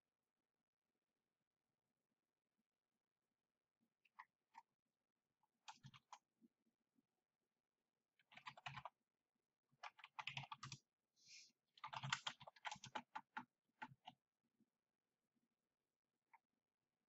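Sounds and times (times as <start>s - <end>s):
typing on keyboard: 5.6s - 6.2s, 8.2s - 9.0s, 9.8s - 10.8s, 11.8s - 14.2s.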